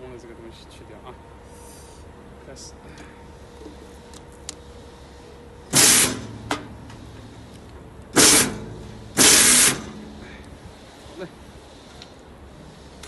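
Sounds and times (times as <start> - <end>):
machine humming: 0.5 - 13.0
bursts of harsh machine noise: 4.6 - 13.0.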